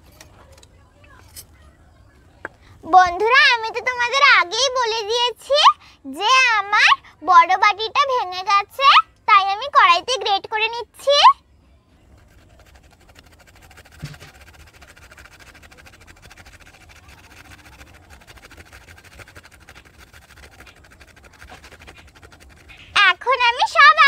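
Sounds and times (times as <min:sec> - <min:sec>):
apple scratching on metal grater: 0:12.1 - 0:24.0.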